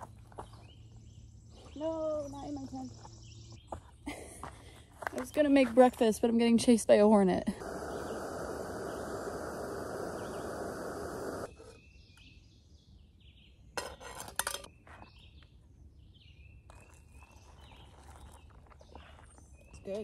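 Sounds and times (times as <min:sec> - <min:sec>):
birds chirping: 0:00.0 - 0:13.8, 0:14.7 - 0:20.0
stove burning with hiss: 0:07.4 - 0:11.7
hot water pouring: 0:07.6 - 0:11.5.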